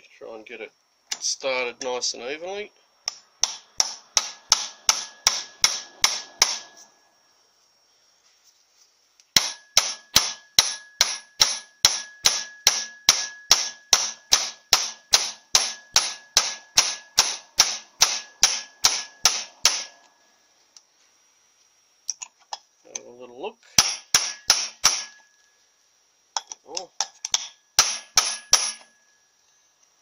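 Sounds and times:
hammer tapping on metal: 0:03.1 - 0:06.8, 0:09.4 - 0:20.1, 0:23.8 - 0:25.2, 0:26.4 - 0:28.9.

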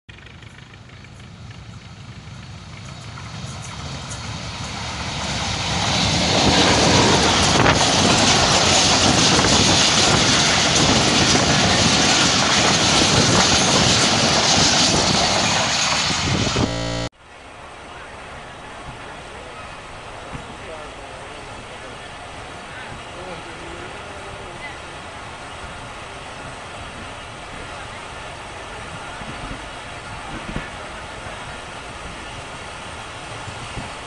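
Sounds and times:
train wheels rumbling on rails: 0:00.1 - 0:16.6, 0:25.2 - 0:34.0.

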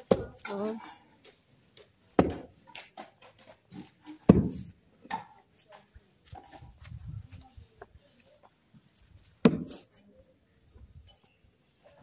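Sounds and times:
hoe chopping into earth: 0:04.3 - 0:04.7, 0:09.4 - 0:09.8.

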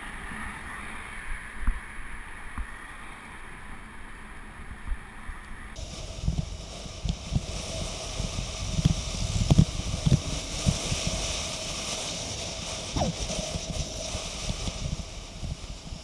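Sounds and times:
wind buffeting microphone: 0:05.7 - 0:16.0.

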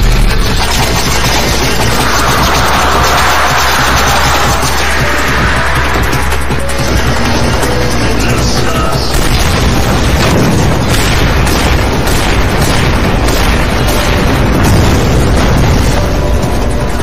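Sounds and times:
continuous rumble: 0:00.0 - 0:17.0
explosion booms: 0:09.1 - 0:17.0.

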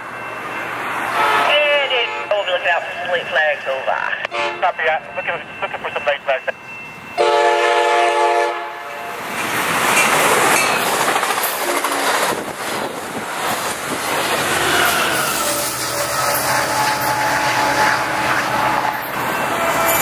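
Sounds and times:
train rushing past: 0:00.0 - 0:20.0
train horn: 0:01.1 - 0:02.3, 0:04.3 - 0:04.7, 0:07.2 - 0:09.2, 0:14.6 - 0:20.0
wheels clattering on rails: 0:09.2 - 0:20.0.

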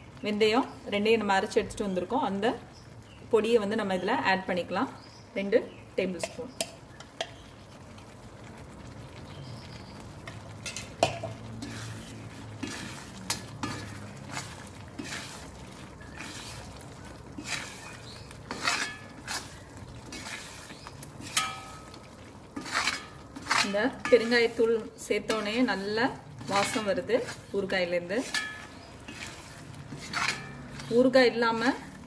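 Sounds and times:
hot oil sizzling: 0:00.0 - 0:32.0
spoon scraping and clinking on pan: 0:10.3 - 0:15.5, 0:17.4 - 0:31.9.

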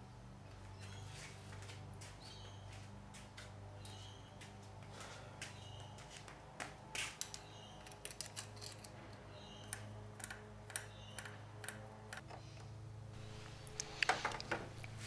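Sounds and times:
steady low hum: 0:08.9 - 0:15.0.

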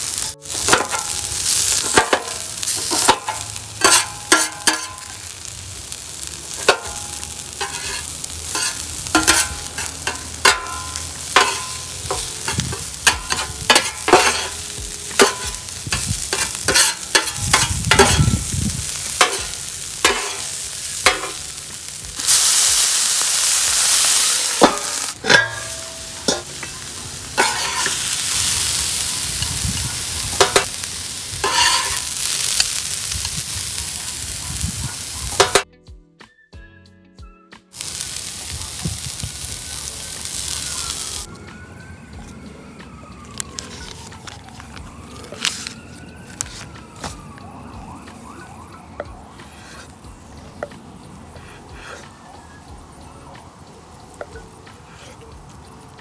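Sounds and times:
food sizzling: 0:00.0 - 0:35.7, 0:37.7 - 0:41.4, 0:43.2 - 0:56.0
metal spatula scraping griddle: 0:00.1 - 0:05.6, 0:06.2 - 0:33.2, 0:49.4 - 0:50.0, 0:51.3 - 0:52.1.

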